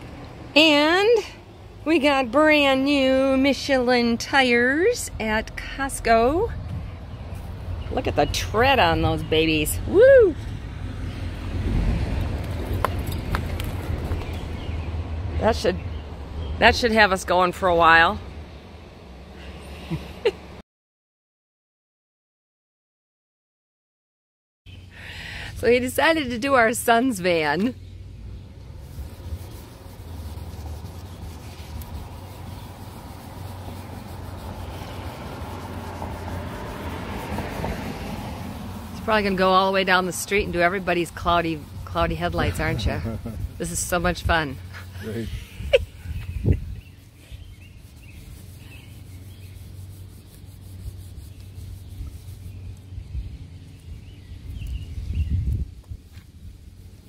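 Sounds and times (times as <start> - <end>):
wipe scrubbing plastic lens: 28.6 - 52.9
low rumble: 41.6 - 46.8.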